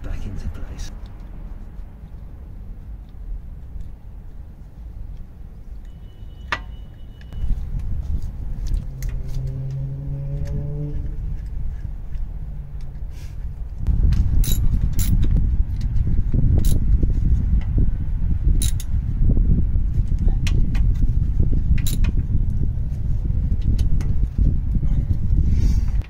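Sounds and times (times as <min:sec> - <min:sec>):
loud low rumble: 0:07.4 - 0:12.8, 0:13.6 - 0:26.0
metallic clicks of bolts: 0:18.6 - 0:18.9.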